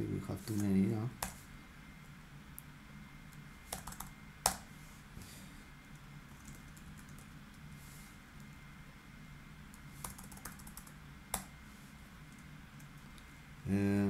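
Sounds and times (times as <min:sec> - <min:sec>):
faint low hum: 0:00.0 - 0:14.0
keyboard keystrokes: 0:10.0 - 0:11.5.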